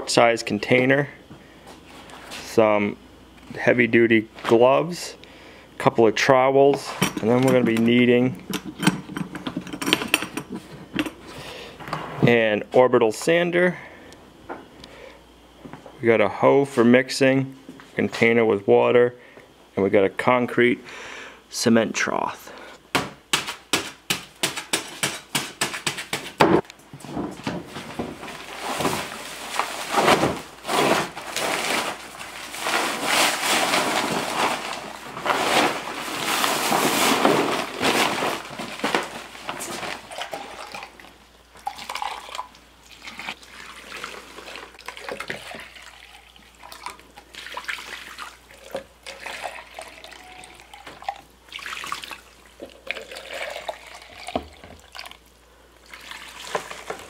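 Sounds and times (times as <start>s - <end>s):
powder pouring: 41.6s - 55.2s
water pouring from jug: 41.6s - 55.2s.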